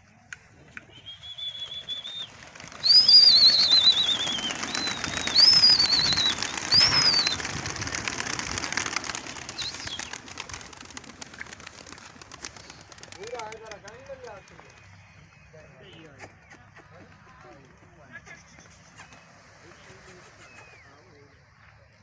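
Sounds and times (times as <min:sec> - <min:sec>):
pigeon wings clattering: 0:00.6 - 0:20.8
person whistling: 0:00.9 - 0:02.2.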